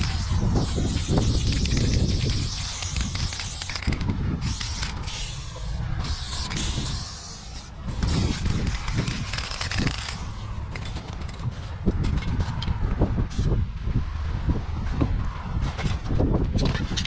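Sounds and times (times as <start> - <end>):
spray paint can hissing: 0.0 - 11.0
low rumble: 0.0 - 16.6.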